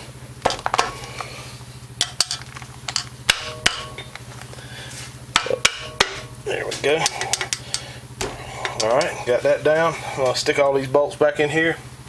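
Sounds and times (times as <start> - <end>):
low steady hum: 0.0 - 12.0
sharp metal clicks and knocks: 2.0 - 4.5, 7.0 - 9.2.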